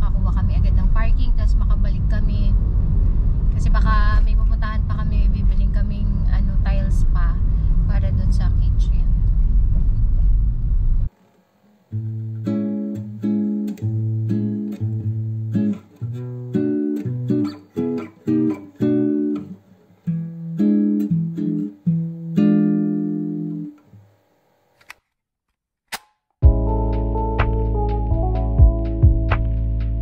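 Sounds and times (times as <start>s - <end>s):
car cabin road rumble: 0.0s - 11.1s
plucked acoustic guitar music: 11.9s - 23.8s.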